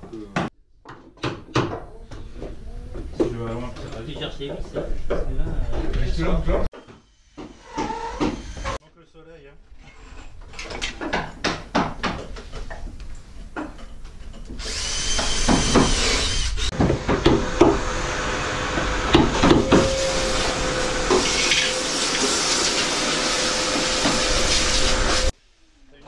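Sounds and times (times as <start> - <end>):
hand tools knocking on timber: 11.0 - 12.8
power tool running: 14.6 - 25.3.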